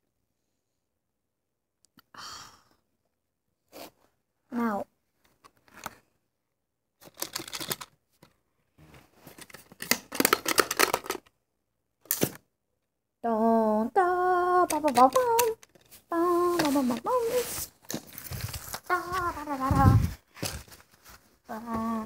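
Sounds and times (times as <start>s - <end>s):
plastic clicks and rattles: 7.0s - 8.3s, 9.3s - 11.3s, 14.7s - 16.0s
child singing or humming: 13.3s - 17.6s, 18.9s - 20.2s, 21.5s - 22.0s.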